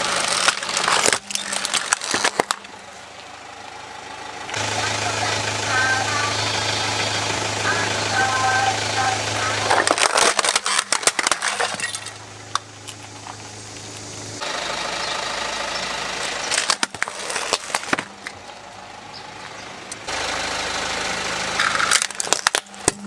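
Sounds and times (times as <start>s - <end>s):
plastic toy cracking: 0.0s - 2.7s, 9.7s - 13.4s, 16.5s - 18.4s, 21.6s - 23.0s
car engine idling: 0.0s - 23.0s.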